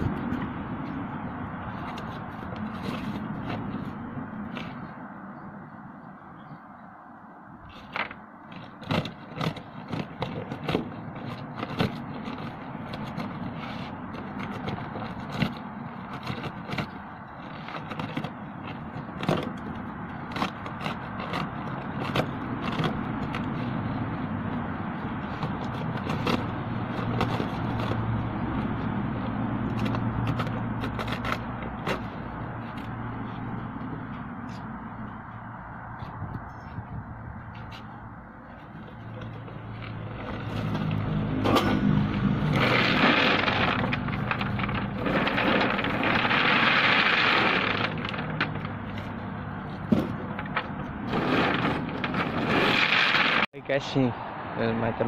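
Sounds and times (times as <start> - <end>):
rocks knocking and scraping: 7.8 - 23.8, 37.5 - 53.5.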